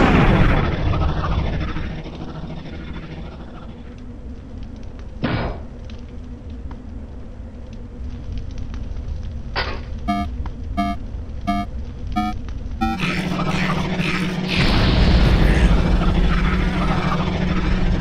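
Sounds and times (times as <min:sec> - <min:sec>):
short electronic beeps: 0:10.1 - 0:13.0.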